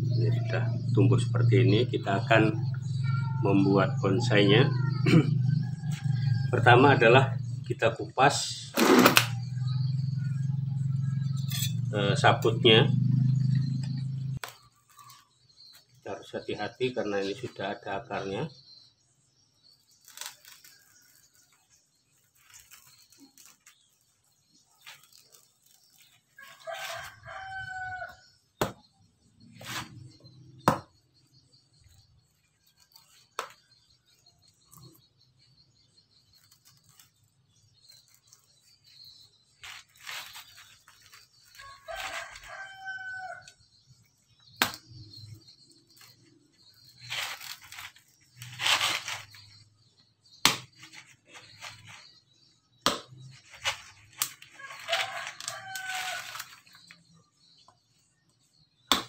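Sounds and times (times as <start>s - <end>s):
fibres tearing: 8.7s - 9.4s, 20.0s - 21.3s, 22.2s - 27.6s, 31.8s - 33.7s, 36.2s - 38.5s, 39.6s - 42.9s, 46.8s - 49.6s, 52.8s - 56.9s
rooster crowing: 26.4s - 28.3s, 41.6s - 43.5s, 54.6s - 56.5s
machete knocking on coconut: 28.6s - 28.8s, 30.6s - 30.9s, 50.4s - 50.7s, 52.8s - 53.2s.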